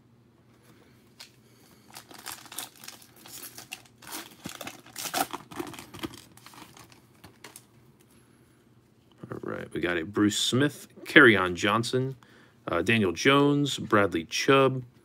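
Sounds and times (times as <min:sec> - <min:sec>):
foil wrapper tearing and crinkling: 0:01.9 - 0:07.6.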